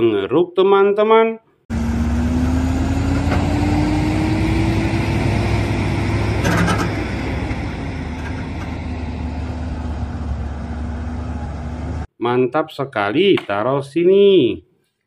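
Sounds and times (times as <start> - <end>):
diesel truck engine under load: 1.7 - 12.1.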